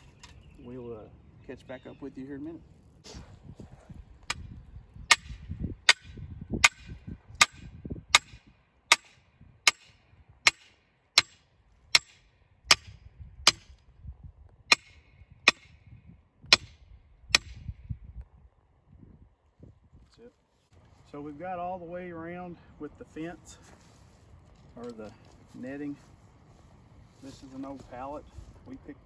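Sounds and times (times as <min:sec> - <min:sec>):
sledgehammer striking steel post: 0:05.1 - 0:13.7, 0:14.7 - 0:15.8, 0:16.5 - 0:17.7.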